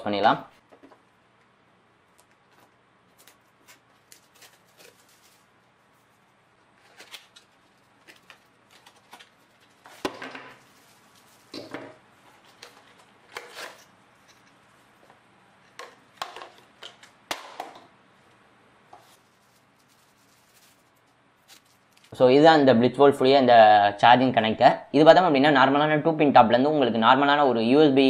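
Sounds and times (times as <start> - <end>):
packaging rustling and scraping: 2.5 - 14.9, 18.9 - 22.2.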